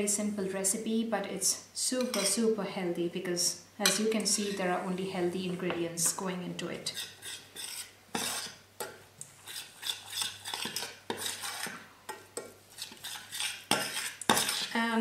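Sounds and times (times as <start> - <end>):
spoon scraping a saucepan: 2.0 - 2.5, 3.8 - 5.0, 6.8 - 8.6, 9.4 - 14.8.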